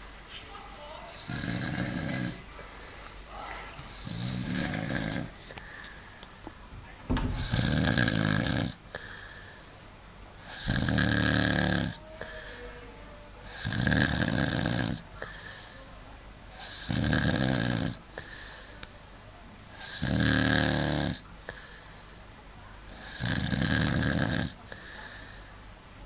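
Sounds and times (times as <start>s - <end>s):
man snoring: 1.2s - 2.4s, 3.9s - 5.4s, 7.3s - 8.8s, 10.5s - 12.0s, 13.5s - 15.0s, 16.6s - 18.0s, 19.8s - 21.2s, 23.1s - 24.6s.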